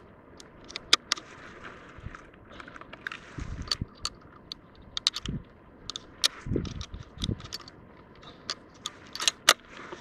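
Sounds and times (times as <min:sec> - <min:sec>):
rifle bolt clicking and rattling: 0:03.6 - 0:07.8, 0:08.4 - 0:09.6.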